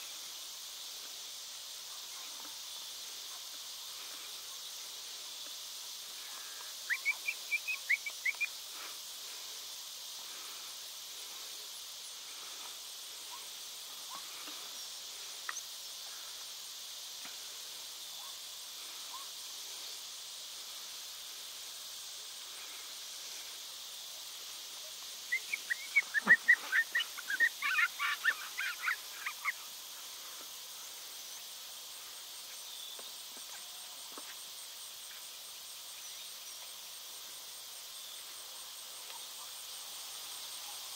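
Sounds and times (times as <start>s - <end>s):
insects buzzing: 0.0s - 40.9s
quick high chirping calls: 6.8s - 8.6s, 25.3s - 29.7s.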